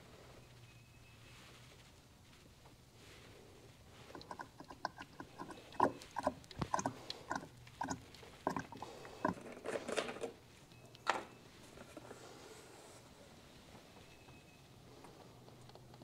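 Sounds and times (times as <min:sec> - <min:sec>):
oil glugging from bottle: 0:04.0 - 0:09.9.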